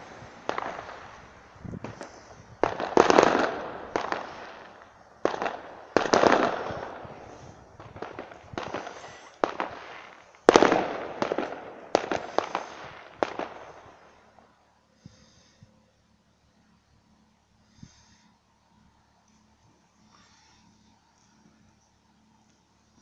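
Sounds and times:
sharp bangs: 0:00.0 - 0:13.9.

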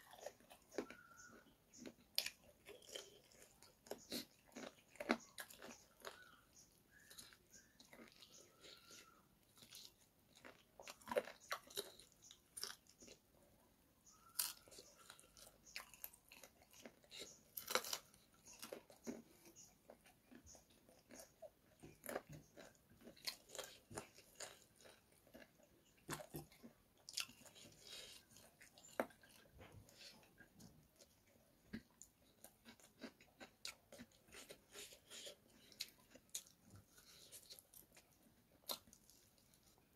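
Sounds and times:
man chewing food: 0:00.0 - 0:39.9.

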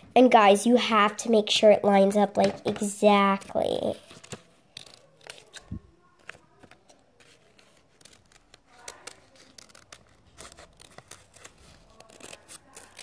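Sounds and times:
scissors snipping paper: 0:04.1 - 0:13.0.

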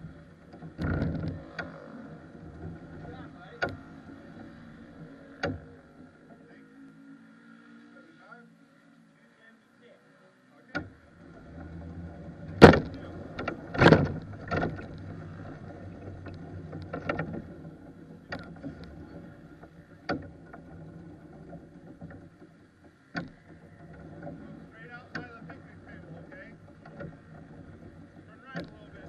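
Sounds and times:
chassis knocks and rattles: 0:00.0 - 0:06.5, 0:10.7 - 0:29.0
go-kart rumbling over bumpy ground: 0:00.0 - 0:29.0
loud thumps: 0:12.4 - 0:15.0.

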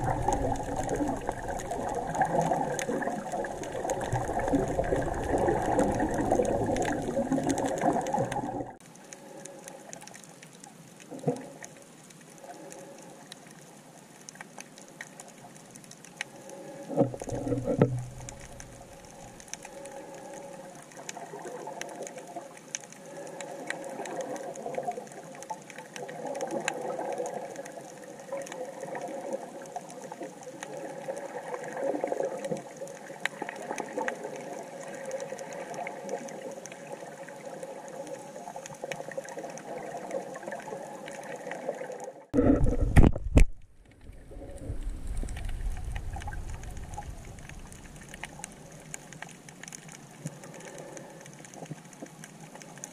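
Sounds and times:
underwater breathing bubbles: 0:00.0 - 0:09.9, 0:30.7 - 0:43.4.

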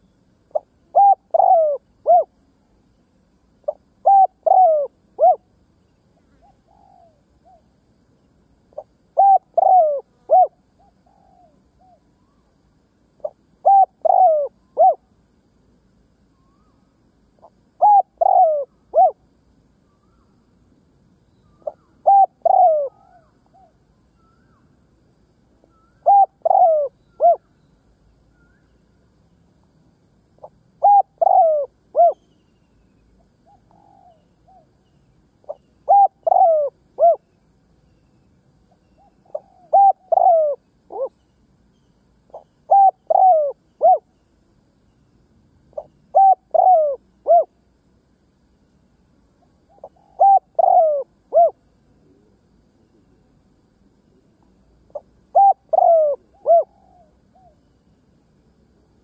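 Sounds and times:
dove cooing: 0:00.5 - 0:02.4, 0:03.7 - 0:05.5, 0:06.4 - 0:07.7, 0:08.7 - 0:12.0, 0:13.2 - 0:15.1, 0:17.4 - 0:19.2, 0:21.6 - 0:23.8, 0:25.7 - 0:27.5, 0:30.4 - 0:32.2, 0:33.4 - 0:34.7, 0:35.4 - 0:37.3, 0:39.0 - 0:41.1, 0:42.3 - 0:44.1, 0:45.7 - 0:47.5, 0:49.7 - 0:52.4, 0:54.9 - 0:57.6.

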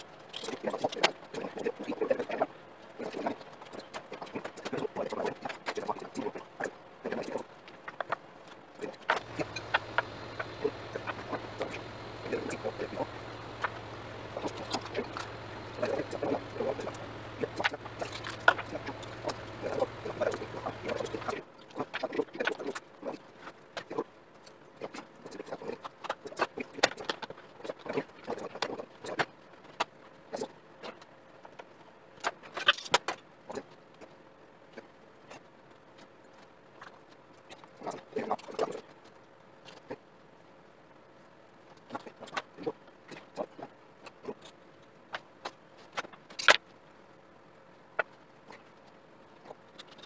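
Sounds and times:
low steady hum: 0:00.0 - 0:26.9.

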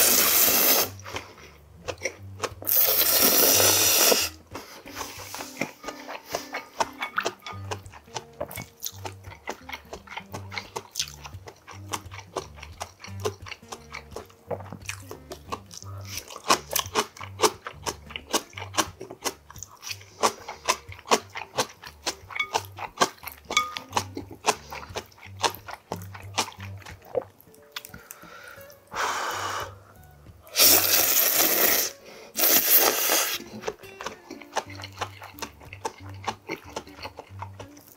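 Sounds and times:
man slurping noodles: 0:00.0 - 0:01.1, 0:02.7 - 0:04.4, 0:30.5 - 0:33.5
background music with bass line: 0:00.0 - 0:37.9
man slurping and chewing noodles: 0:00.0 - 0:37.9.

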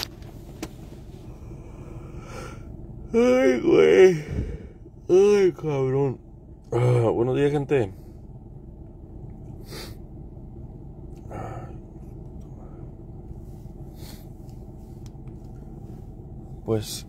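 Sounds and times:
low hum in vehicle cabin: 0:00.0 - 0:17.0
person sniffing: 0:09.6 - 0:10.0.

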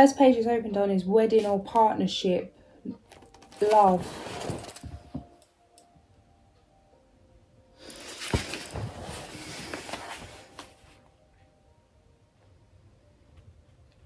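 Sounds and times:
soft background music: 0:00.0 - 0:14.0
book pages rustling: 0:03.0 - 0:05.3, 0:07.8 - 0:11.1.

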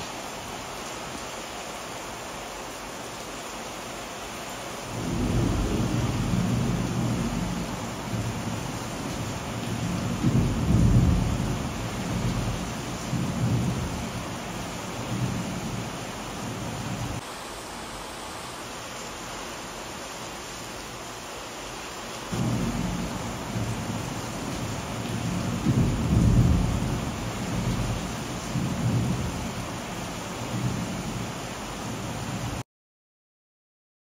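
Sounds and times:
steady rain: 0:00.0 - 0:32.6
thunder rumble: 0:04.9 - 0:17.2, 0:22.4 - 0:29.7.

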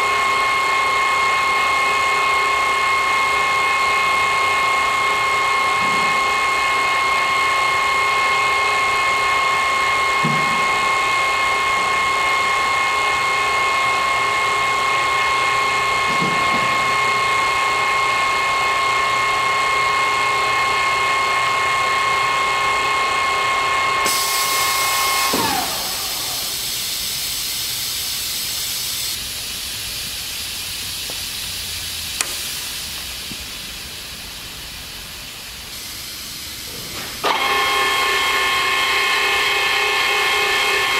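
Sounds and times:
drill press gear whine: 0:00.0 - 0:40.9
pneumatic air hiss: 0:24.0 - 0:40.9
click: 0:32.2 - 0:32.4.

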